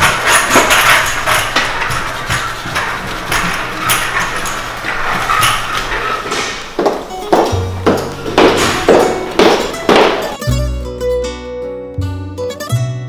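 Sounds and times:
scooter wheels clacking on tiles: 0.0s - 10.4s.

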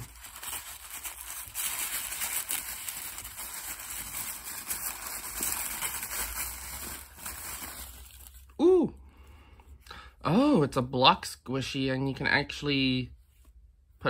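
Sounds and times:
packaging crinkling: 0.0s - 8.6s.

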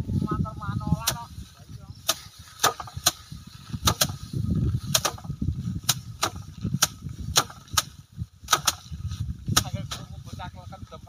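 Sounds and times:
rice stalks slapping on wood: 2.0s - 10.1s.

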